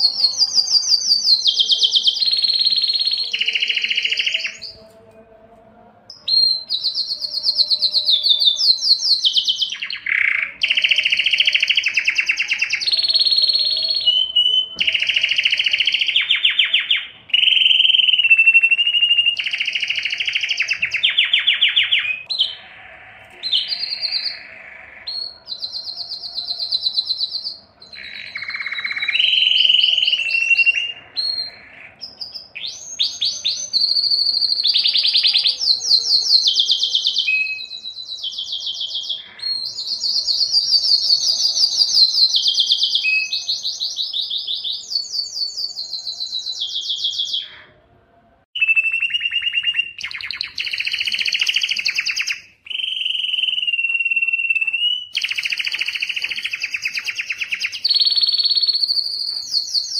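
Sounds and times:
canary singing trills: 0.0s - 5.3s, 6.0s - 47.9s, 48.6s - 59.9s.

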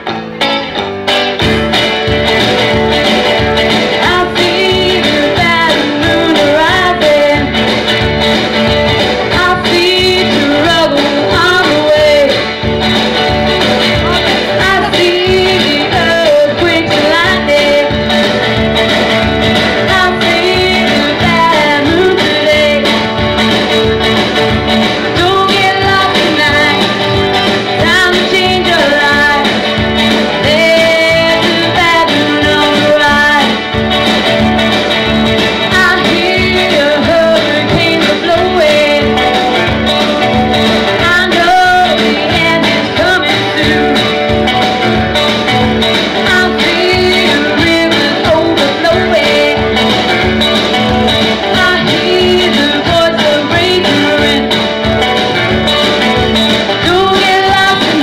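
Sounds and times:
backing music with guitar: 0.0s - 58.0s
woman singing into microphone: 3.9s - 7.7s, 9.2s - 12.5s, 13.8s - 18.1s, 19.5s - 23.2s, 25.0s - 33.8s, 35.5s - 39.8s, 40.9s - 44.2s, 46.1s - 49.9s, 51.4s - 54.6s, 56.7s - 58.0s.

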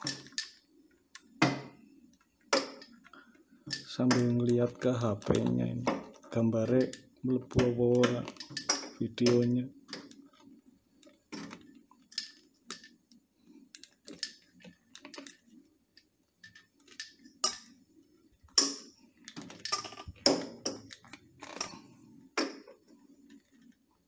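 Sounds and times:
rubber hose clicking and rubbing: 2.1s - 17.6s, 18.5s - 21.8s.

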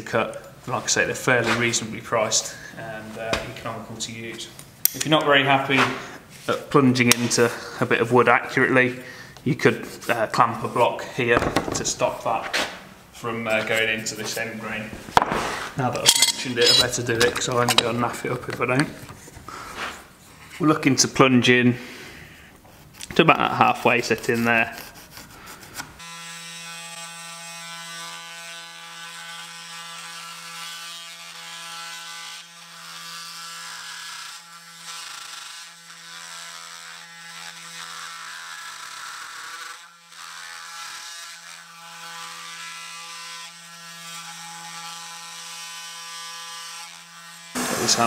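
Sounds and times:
multi-tool buzzing through wood: 13.5s - 20.2s, 24.0s - 48.0s.

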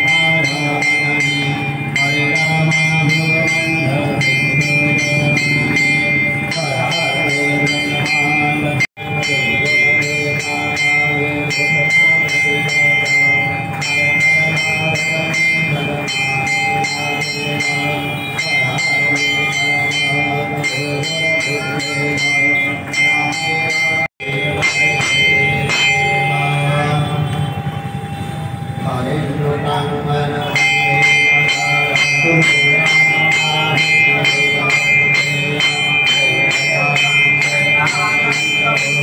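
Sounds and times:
rhythmic metallic beat: 0.0s - 28.1s
temple bells ringing: 0.0s - 39.0s.

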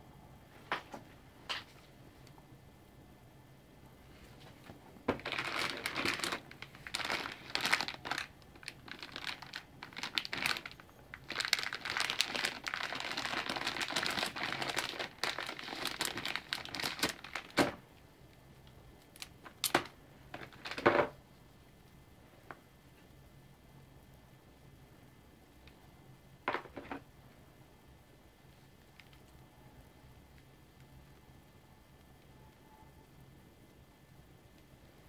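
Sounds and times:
plastic bag crinkling: 4.5s - 17.8s, 19.1s - 21.2s.

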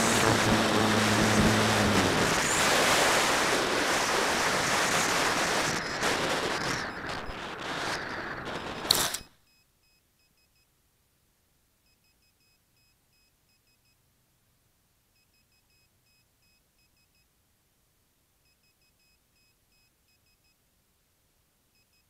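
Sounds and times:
wind rushing over microphone: 0.0s - 9.2s
faint electronic beeps: 11.8s - 14.0s, 15.2s - 17.3s, 18.4s - 20.6s, 21.7s - 22.0s.

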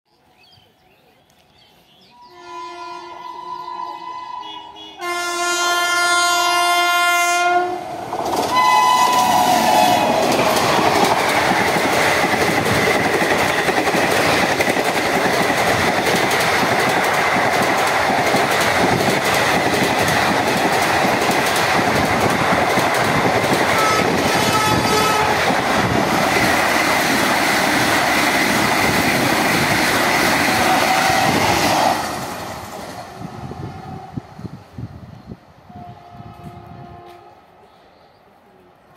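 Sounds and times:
train coaches rumbling past: 2.1s - 38.9s
train horn blasts: 2.2s - 7.9s, 8.5s - 10.3s, 23.7s - 25.5s, 35.7s - 37.6s.

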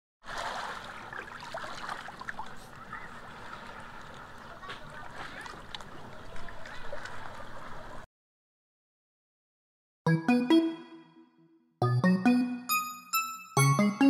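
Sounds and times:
water lapping among rocks: 0.2s - 8.0s
small splashes and clicks: 0.5s - 8.0s.

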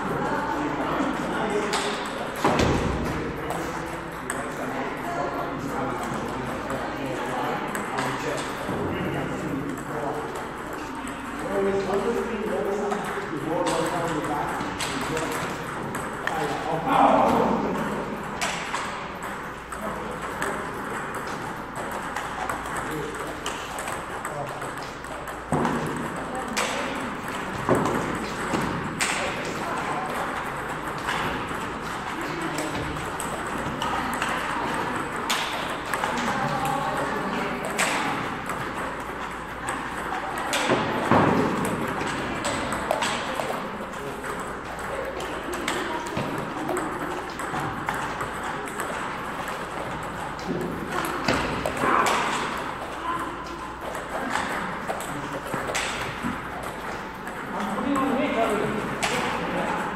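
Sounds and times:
table tennis balls clicking: 1.0s - 59.9s.

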